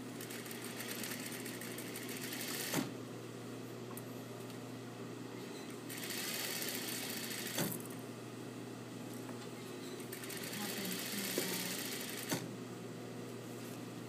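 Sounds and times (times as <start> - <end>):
sewing machine motor humming: 0.2 - 2.9, 5.9 - 7.8, 10.1 - 12.4
sewing machine stitching: 5.9 - 7.7, 10.1 - 12.4.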